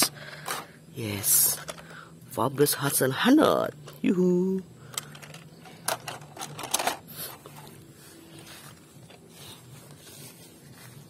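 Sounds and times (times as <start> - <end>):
plastic toys clattering: 1.4 - 2.0, 4.9 - 7.7.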